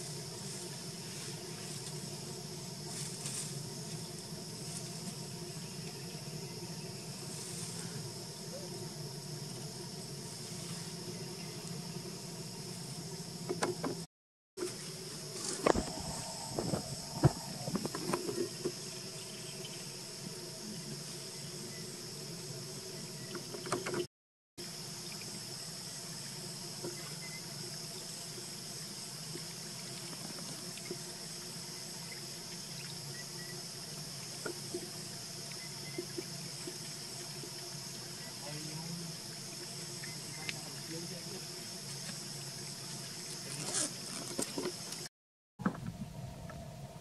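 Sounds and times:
high-pitched insect buzz: 0:00.0 - 0:45.1
faint rustle: 0:00.4 - 0:03.7.

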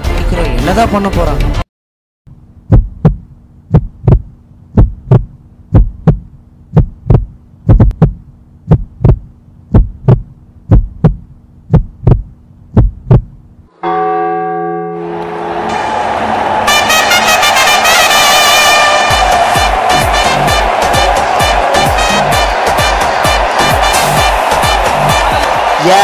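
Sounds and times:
steady low hum: 0:02.3 - 0:13.7
heartbeat thumps: 0:02.6 - 0:13.4
clock chime: 0:13.8 - 0:15.5.

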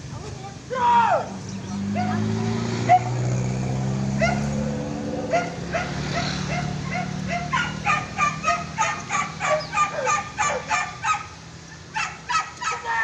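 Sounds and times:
hunting dogs yelping and barking: 0:02.8 - 0:03.2, 0:04.0 - 0:13.0.

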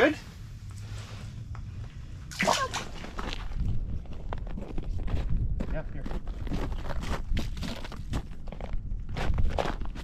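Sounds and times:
low rumble: 0:00.2 - 0:09.5
footsteps crunching on ice: 0:03.0 - 0:10.0.

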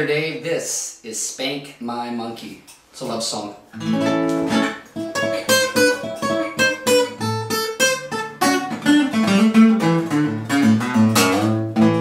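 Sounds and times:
guitar strumming: 0:03.7 - 0:12.0.

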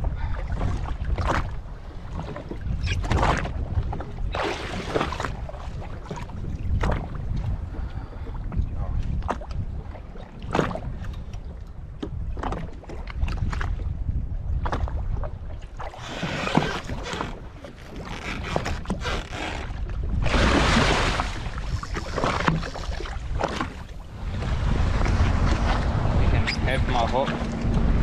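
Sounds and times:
water slapping against hull: 0:00.0 - 0:28.0
wind buffeting microphone: 0:00.0 - 0:28.0
rush of noise: 0:24.2 - 0:28.0.

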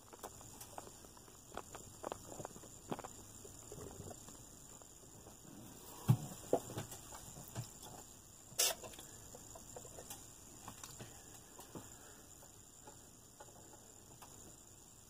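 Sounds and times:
faint high hum: 0:00.0 - 0:15.0.

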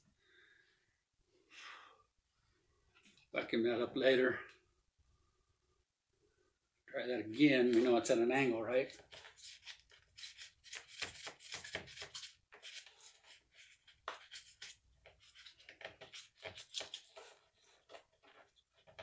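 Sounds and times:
wires scratching through foam: 0:08.8 - 0:19.0.

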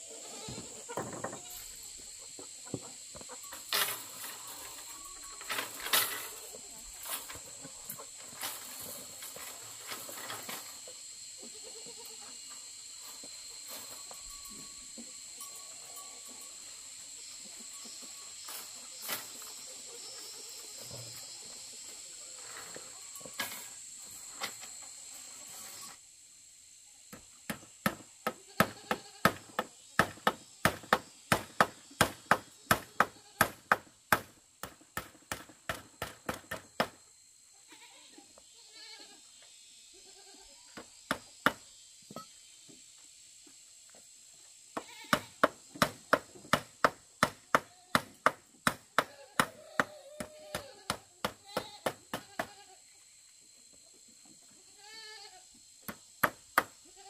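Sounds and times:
animal bleating: 0:00.1 - 0:01.7, 0:28.4 - 0:29.3, 0:32.9 - 0:33.5, 0:37.6 - 0:39.2, 0:40.0 - 0:40.6, 0:44.8 - 0:45.3, 0:49.0 - 0:52.8, 0:54.6 - 0:55.4.

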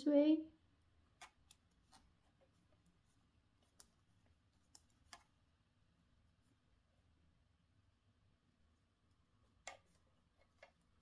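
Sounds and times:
knitting needles clicking: 0:01.1 - 0:02.1, 0:03.6 - 0:05.3.

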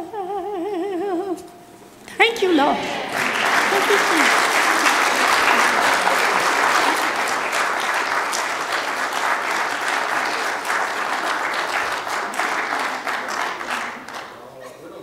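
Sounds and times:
congregation applauding: 0:02.8 - 0:14.6.

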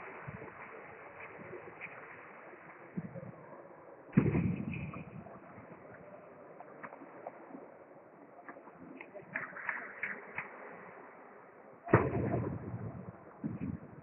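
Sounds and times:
heavy thud echoing: 0:11.9 - 0:12.8.

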